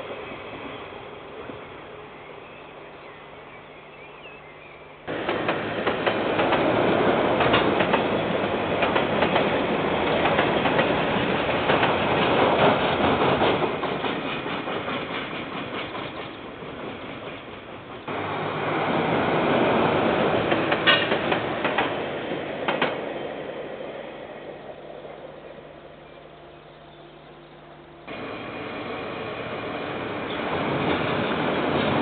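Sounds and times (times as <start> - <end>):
freight train wheels clattering: 5.1 - 18.2, 18.9 - 24.0.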